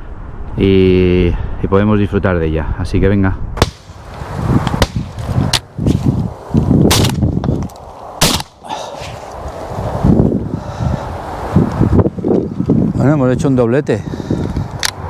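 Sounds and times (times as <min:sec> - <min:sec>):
low wind rumble: 0:00.0 - 0:15.0
shotgun shots: 0:03.6 - 0:04.0, 0:04.8 - 0:05.1, 0:06.9 - 0:07.2, 0:08.2 - 0:08.6.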